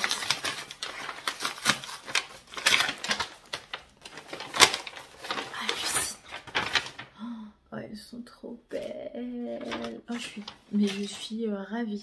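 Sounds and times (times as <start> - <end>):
packaging rustling and crinkling: 0.0 - 7.1, 9.6 - 11.4.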